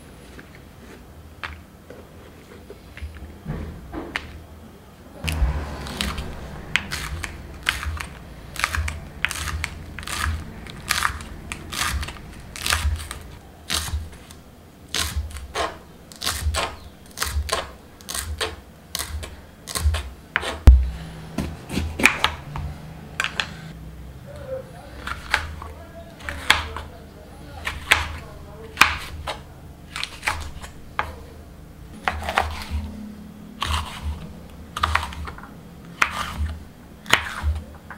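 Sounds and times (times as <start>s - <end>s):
knife chopping on wooden board: 5.3s - 14.1s, 15.0s - 22.6s, 28.8s - 29.4s, 36.0s - 37.6s
knife cutting bell pepper: 5.3s - 20.9s, 25.0s - 26.9s, 27.6s - 31.2s, 32.0s - 32.9s, 33.6s - 37.7s.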